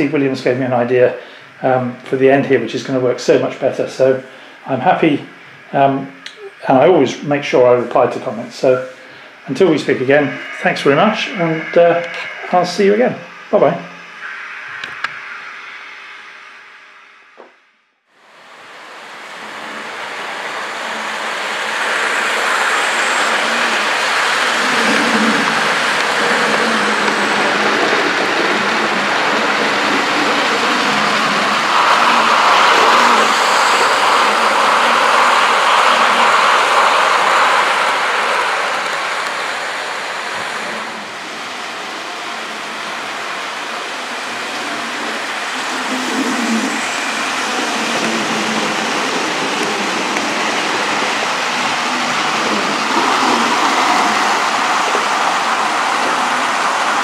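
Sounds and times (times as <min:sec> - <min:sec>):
model steam locomotive sounds: 0:00.0 - 0:16.1, 0:18.2 - 0:57.0
wheels rumbling on track: 0:18.6 - 0:57.0.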